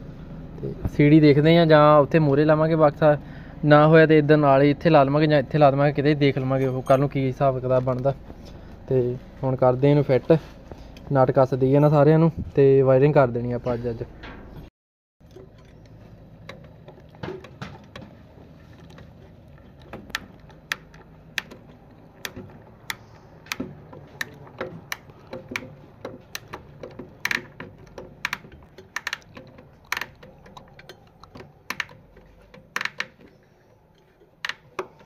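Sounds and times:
small clicks and taps: 15.2s - 35.0s.

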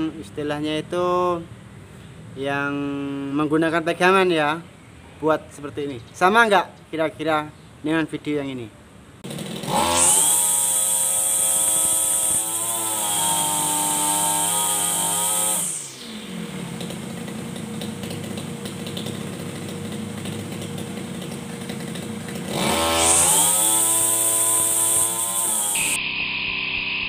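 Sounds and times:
brush cutter engine revving: 9.2s - 26.0s.

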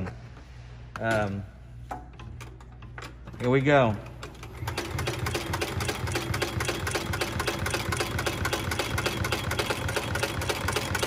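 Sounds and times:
sewing machine clattering: 4.3s - 11.0s.

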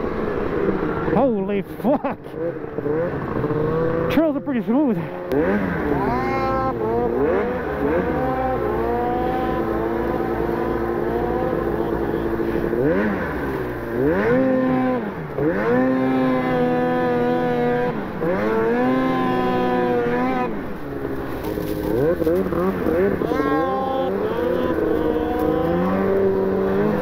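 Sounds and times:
snowmobile engine revving: 0.0s - 27.0s.

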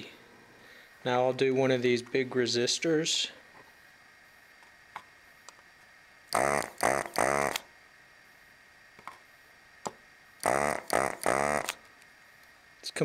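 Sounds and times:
vacuum pump buzzing: 6.3s - 7.7s, 10.4s - 11.9s.

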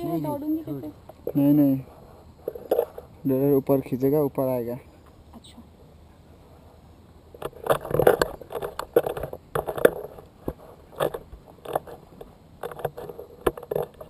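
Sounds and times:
rustling and buffeting on microphone: 0.0s - 3.4s, 6.3s - 14.0s.

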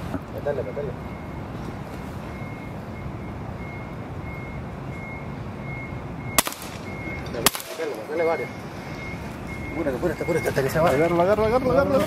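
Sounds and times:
vehicle rumble: 0.0s - 12.0s
faint backup alarm beeping: 0.4s - 12.0s
air rifle shot: 6.4s - 7.9s.

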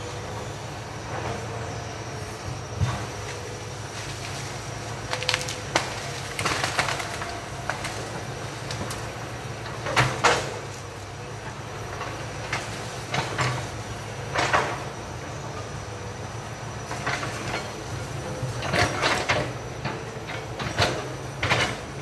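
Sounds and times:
distant excavator diesel engine: 0.0s - 22.0s
trees cracking and knocking: 2.6s - 14.9s.

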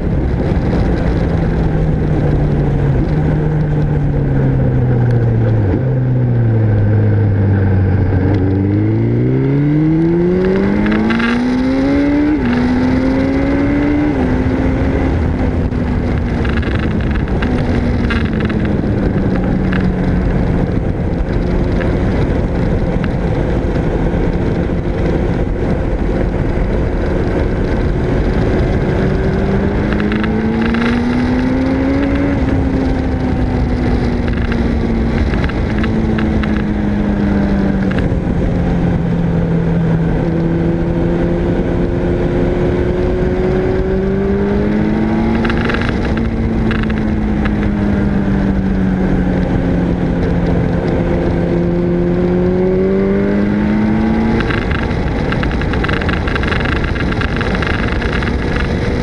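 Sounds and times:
motorcycle engine revving: 0.0s - 59.0s
wind rush on microphone: 0.0s - 59.0s.

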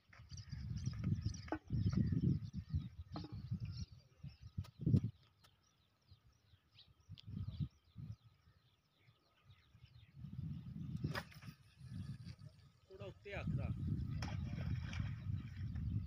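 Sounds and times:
small birds chirping: 0.0s - 16.0s
low rumbles buffeting microphone: 9.6s - 16.0s.

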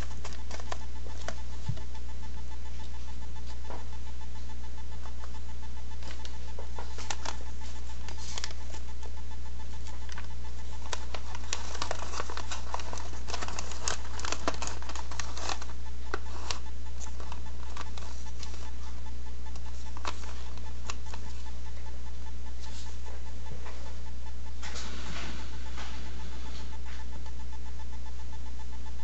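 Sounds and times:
paper rustling and crinkling: 0.0s - 1.8s, 6.0s - 8.8s, 10.0s - 19.0s, 19.6s - 21.4s
steady low hum: 0.0s - 29.0s.

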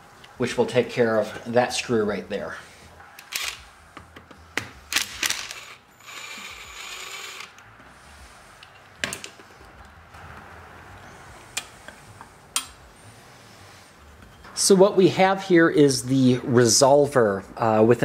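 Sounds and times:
cordless drill running: 5.0s - 7.6s.

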